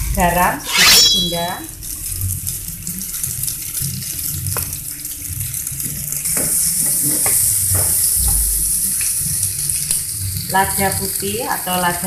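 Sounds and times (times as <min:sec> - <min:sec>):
spatula scraping a pan: 0:00.6 - 0:01.5
egg sizzling in a frying pan: 0:03.1 - 0:12.0.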